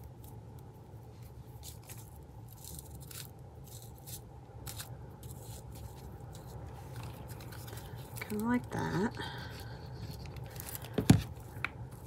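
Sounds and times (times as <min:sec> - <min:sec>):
faint low hum: 0:00.0 - 0:12.0
paper rustling and crinkling: 0:05.2 - 0:08.8, 0:09.4 - 0:12.0.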